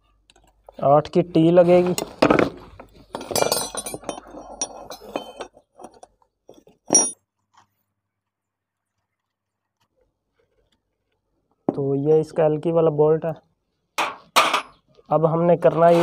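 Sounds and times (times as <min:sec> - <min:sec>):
steel tools clinking on metal: 0:03.1 - 0:06.1, 0:06.9 - 0:07.2.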